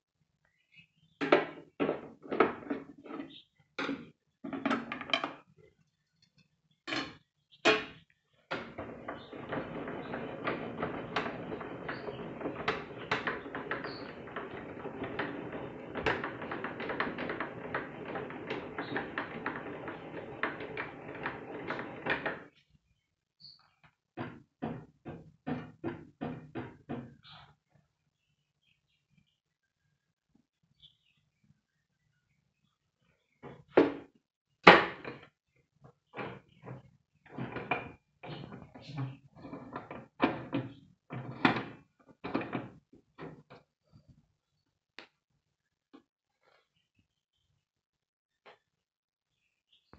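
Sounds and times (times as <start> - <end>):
knocks and clacks from table saw: 7.7 - 22.5, 24.2 - 27.1, 36.2 - 38.7, 39.4 - 43.6
crank rattling and clicking: 8.8 - 22.5.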